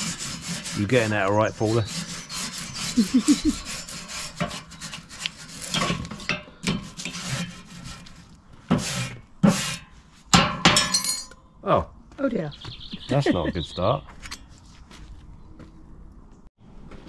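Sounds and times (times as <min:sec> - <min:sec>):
grill brush scraping metal grates: 0:00.0 - 0:10.8.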